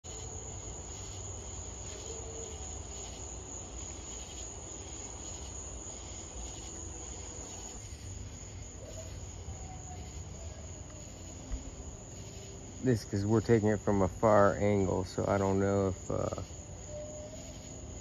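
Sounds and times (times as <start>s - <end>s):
crickets chirring: 0.0s - 18.0s
steady low rumble: 7.2s - 16.9s.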